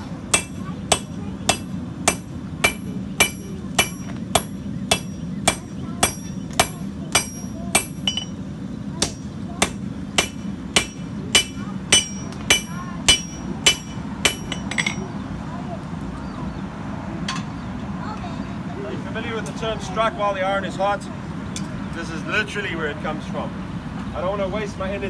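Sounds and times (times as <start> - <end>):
hammer striking steel on anvil: 0.3 - 8.4, 9.0 - 15.1.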